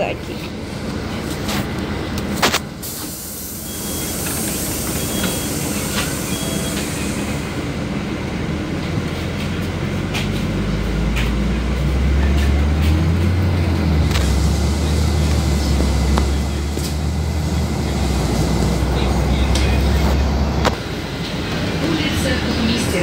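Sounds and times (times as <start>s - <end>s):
bus engine drone: 0.0s - 23.0s
air hiss: 2.8s - 7.5s.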